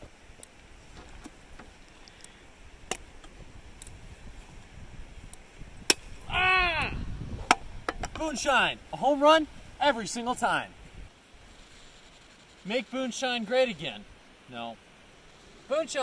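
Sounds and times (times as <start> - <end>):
wind rushing over microphone: 2.6 - 11.6
person whooping: 6.2 - 7.1.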